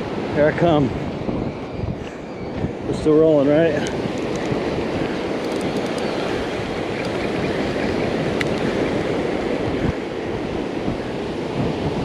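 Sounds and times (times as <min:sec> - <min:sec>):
surf breaking on shore: 0:00.0 - 0:12.0
wind rumbling on microphone: 0:00.0 - 0:12.0.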